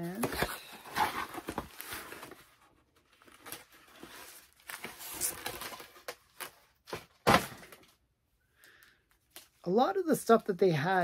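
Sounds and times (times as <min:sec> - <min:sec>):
packaging rustling and crinkling: 0:00.0 - 0:07.9.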